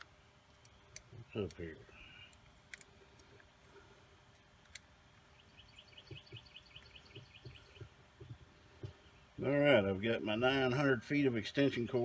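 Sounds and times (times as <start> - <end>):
bird chirping: 0.0 - 2.4, 5.2 - 9.6.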